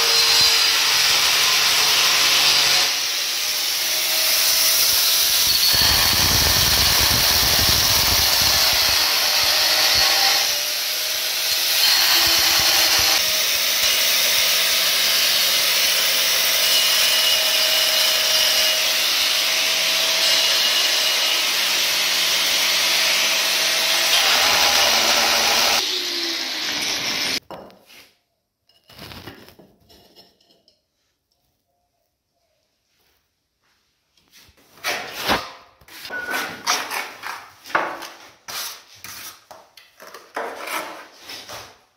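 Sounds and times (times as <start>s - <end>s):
angle grinder cutting tile: 0.0s - 27.4s.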